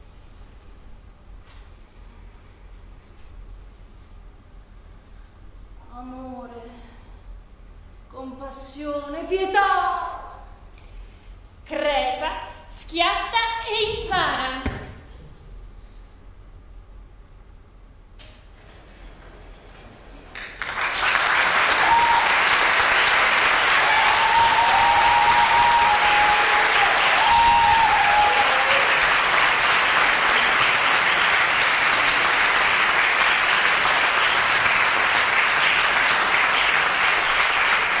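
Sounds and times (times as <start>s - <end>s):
audience applauding: 20.3s - 38.0s
audience calls: 20.7s - 38.0s.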